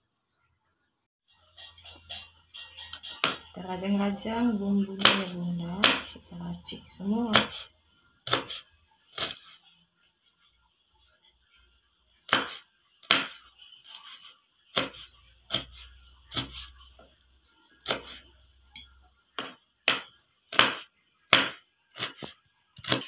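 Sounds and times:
knife chopping on plastic board: 3.0s - 3.5s, 5.0s - 6.2s, 7.3s - 7.7s, 8.3s - 9.5s, 12.3s - 13.4s, 14.0s - 17.1s, 17.8s - 18.2s, 19.4s - 23.0s.

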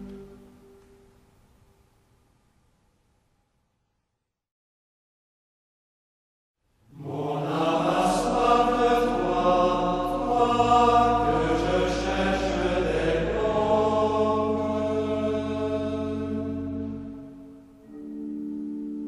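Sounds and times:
sustained background music: 0.0s - 1.8s, 7.0s - 19.0s.

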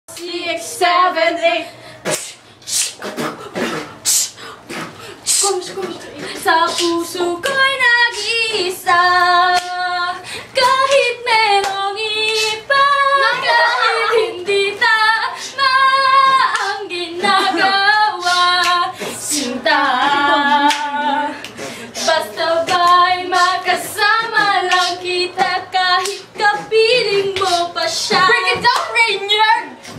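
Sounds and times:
woman singing a cappella: 0.1s - 2.4s, 5.2s - 29.9s.

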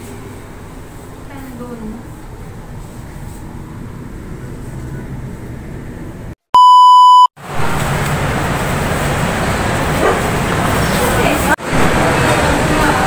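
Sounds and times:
electronic beep: 6.6s - 7.3s
outdoor noise: 7.4s - 13.0s.

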